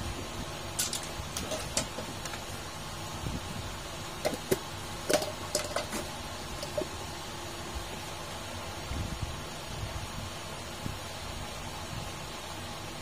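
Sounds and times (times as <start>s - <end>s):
background hum: 0.0s - 13.0s
small parts clicking and knocking: 0.8s - 2.4s, 4.2s - 6.9s.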